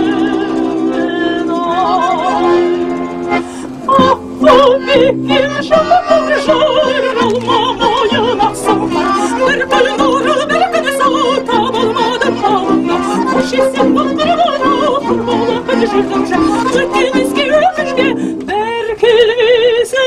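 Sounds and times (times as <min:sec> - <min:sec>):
accordion chords: 0:00.0 - 0:19.3
woman singing with vibrato: 0:00.0 - 0:20.0.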